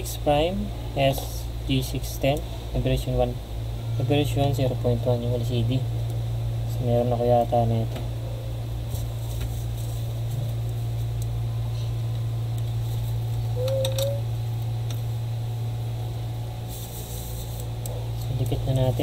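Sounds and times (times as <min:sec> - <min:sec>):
steady low hum: 0:00.0 - 0:19.0
rising squeak: 0:13.6 - 0:14.3.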